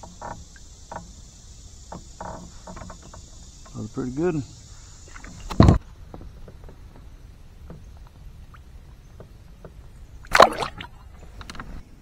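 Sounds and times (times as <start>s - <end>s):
fish splashing into water: 10.2s - 11.0s
faint small clicks and knocks: 11.1s - 11.8s.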